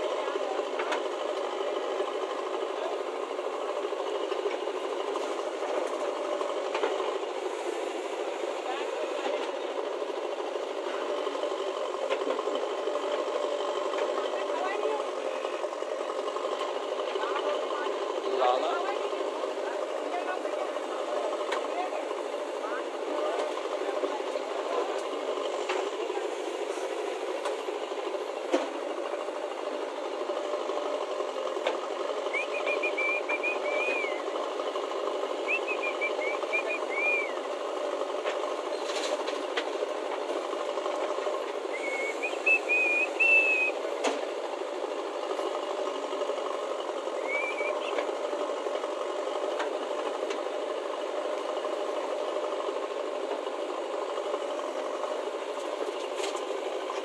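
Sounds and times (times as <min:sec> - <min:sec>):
diesel engine under load: 0:00.0 - 0:57.0
high warbling whistles: 0:32.3 - 0:34.2, 0:35.4 - 0:37.4, 0:41.7 - 0:43.8, 0:47.2 - 0:48.0.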